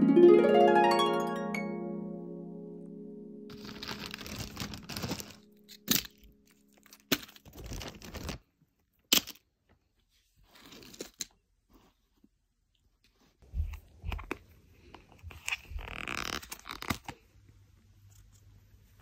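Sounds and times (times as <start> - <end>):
harp note: 0.0 - 6.8
plastic bag crinkling: 3.5 - 8.5.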